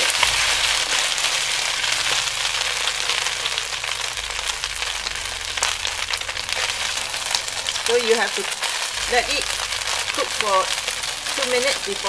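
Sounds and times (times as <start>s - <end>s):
noodles sizzling in a wok: 0.0s - 12.0s.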